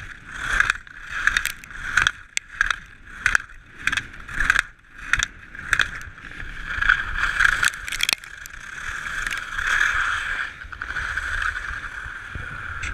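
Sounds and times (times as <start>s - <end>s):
skis carving and scraping on snow: 0.0s - 12.9s.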